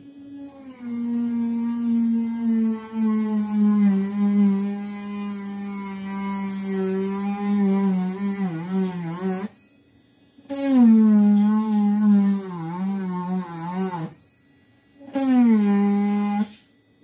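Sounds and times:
rotary tool drilling coconut shell: 0.3s - 9.6s, 15.1s - 16.6s.

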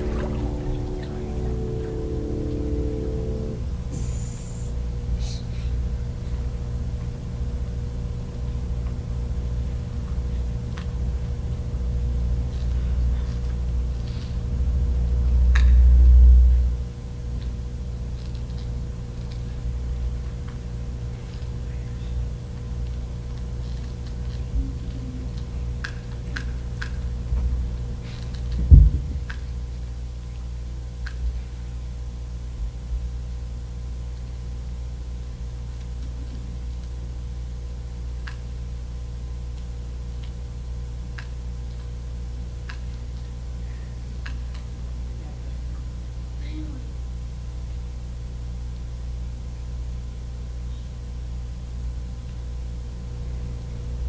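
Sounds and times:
low rumble: 0.0s - 4.7s
electrical hum: 0.0s - 14.1s, 49.8s - 54.0s
steady low hum: 0.0s - 46.3s, 47.0s - 54.0s.

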